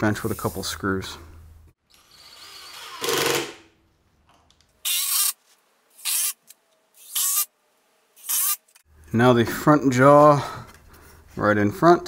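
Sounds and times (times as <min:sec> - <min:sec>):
cordless drill driving screws: 0:01.9 - 0:03.6, 0:04.9 - 0:05.4, 0:06.0 - 0:06.4, 0:07.0 - 0:07.5, 0:08.2 - 0:08.8.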